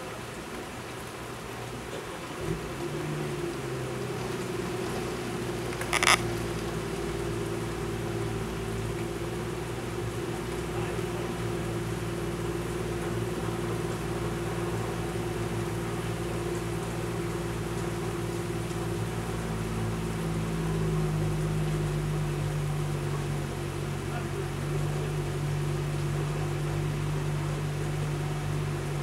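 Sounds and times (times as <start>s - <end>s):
heavy rain pouring: 0.0s - 29.0s
deeper hum: 5.7s - 6.6s.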